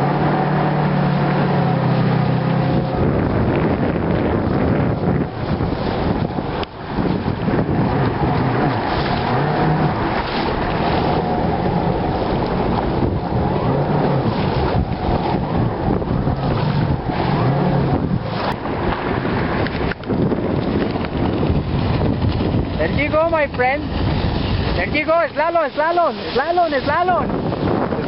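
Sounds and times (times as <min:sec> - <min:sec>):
jet ski engine running: 0:00.0 - 0:28.0
water rushing past: 0:00.0 - 0:28.0
wind buffeting on microphone: 0:00.0 - 0:28.0.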